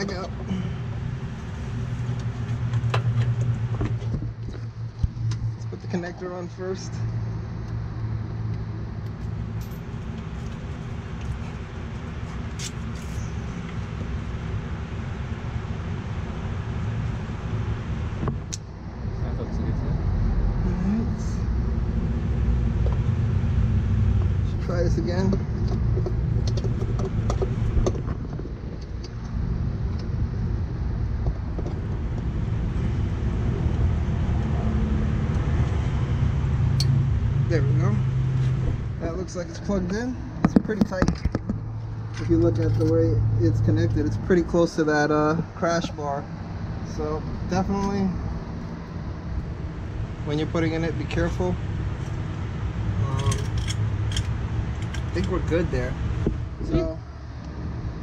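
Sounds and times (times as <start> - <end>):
vehicle engine rumbling: 0.0 - 58.0.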